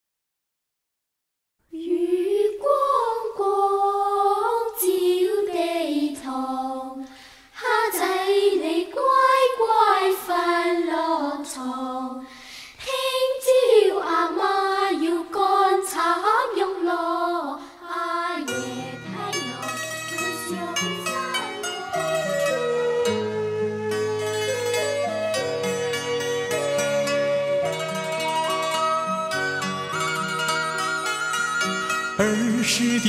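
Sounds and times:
wordless choir singing: 1.7s - 22.0s.

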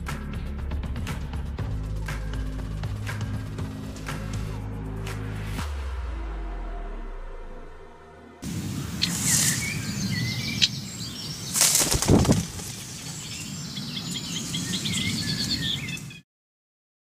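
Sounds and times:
reeds rustling: 8.4s - 16.0s
short sharp bird chirps: 8.7s - 12.4s
wings flapping: 11.4s - 13.9s.

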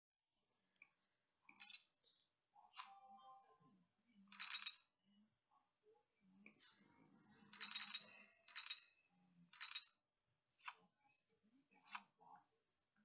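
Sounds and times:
poker chips clattering: 1.6s - 1.9s, 4.3s - 4.8s, 7.5s - 8.9s, 9.6s - 9.9s.

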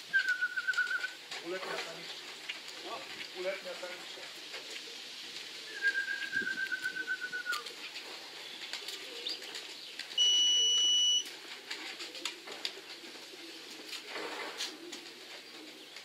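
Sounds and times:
pigeons cooing: 0.0s - 16.0s
electronic beep: 10.2s - 11.2s.

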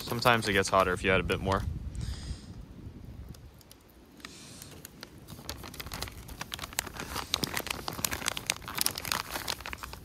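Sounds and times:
plastic bag crinkling: 4.6s - 10.0s.

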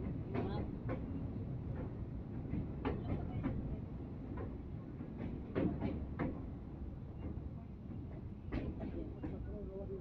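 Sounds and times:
train wheel clacks: 4.3s - 6.4s, 8.0s - 9.5s.

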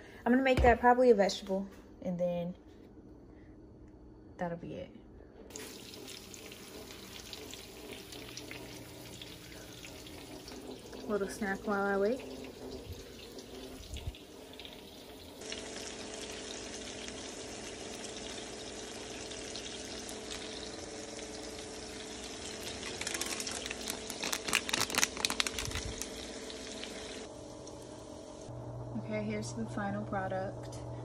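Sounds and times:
faint steady hum: 0.0s - 31.0s
chicken sizzling in oil: 13.0s - 28.5s
sharp crackles and clicks: 22.6s - 26.2s.

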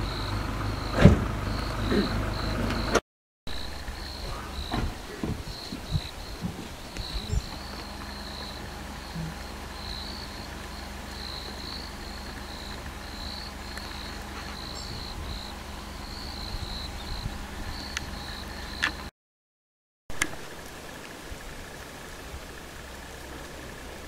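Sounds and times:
insects chirping trill: 0.0s - 19.1s
steady low rumble: 0.0s - 19.1s.

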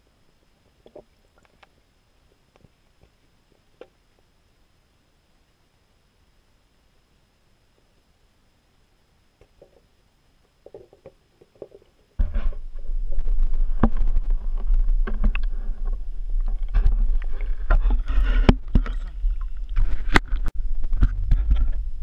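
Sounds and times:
loud low rumble: 12.2s - 18.1s.

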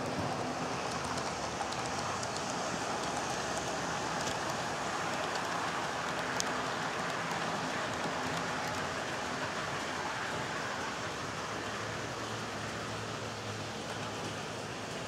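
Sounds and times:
model train wheels rattling: 0.8s - 7.4s
faint clicks: 0.9s - 8.8s.

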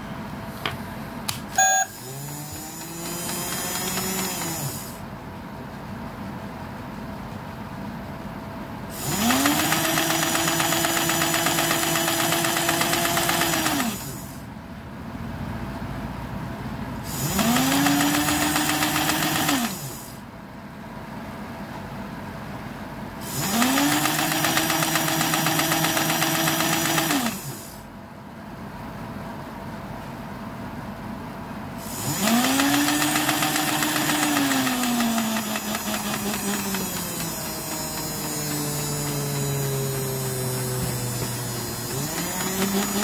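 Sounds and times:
toy motor whining and whirring: 1.6s - 5.0s, 8.9s - 14.4s, 17.1s - 20.2s, 23.2s - 27.8s, 31.8s - 43.0s.

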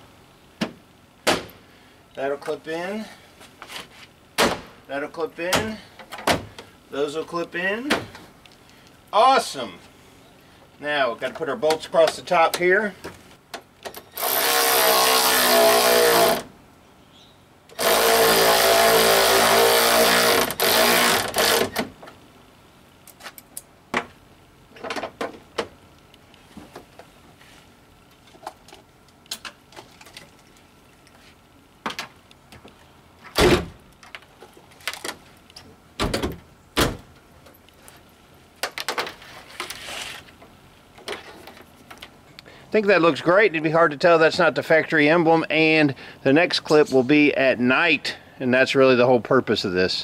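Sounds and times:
power tool motor running: 14.0s - 16.5s, 17.7s - 21.8s.

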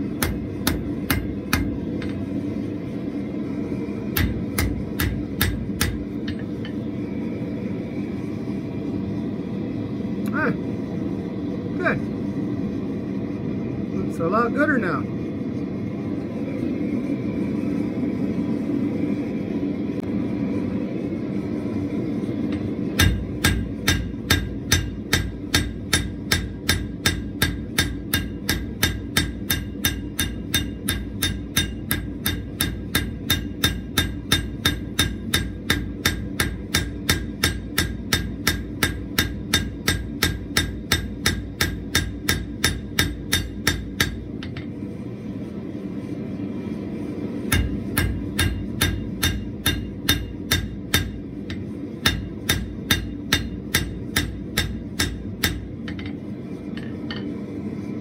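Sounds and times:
hammer striking steel on anvil: 0.0s - 2.3s, 4.1s - 6.9s, 22.5s - 44.8s, 47.4s - 57.4s.

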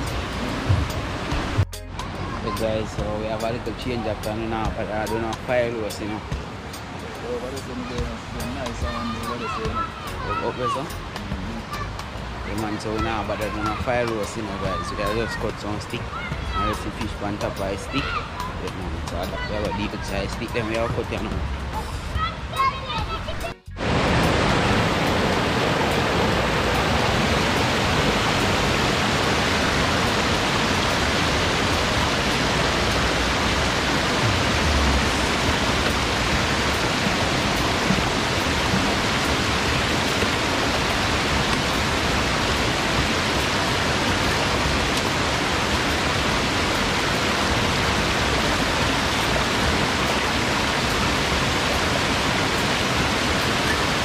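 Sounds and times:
river rushing over stones: 0.0s - 54.0s.

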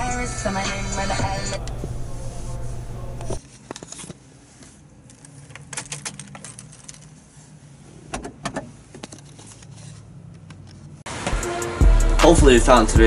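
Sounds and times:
car keys jangling and clicking: 5.1s - 7.2s.

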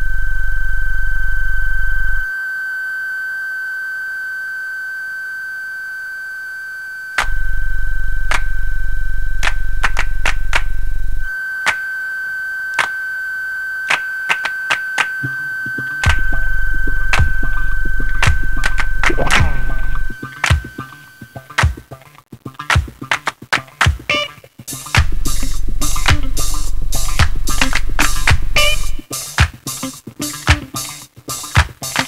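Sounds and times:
loud low buzz: 0.0s - 2.4s, 5.3s - 12.1s, 15.2s - 21.4s, 25.0s - 29.1s
high sine tone: 0.0s - 21.6s, 24.9s - 29.1s.

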